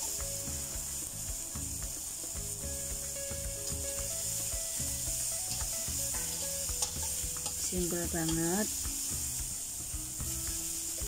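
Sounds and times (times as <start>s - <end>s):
vegetables sizzling in oil: 0.0s - 11.0s
metal spatula scraping a wok: 3.6s - 11.0s.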